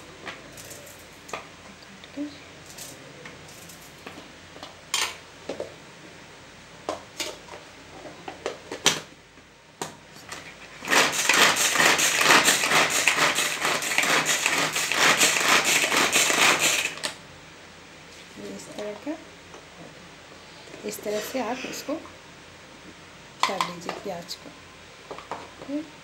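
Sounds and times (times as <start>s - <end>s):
food chopper ratcheting whir: 10.8s - 17.2s.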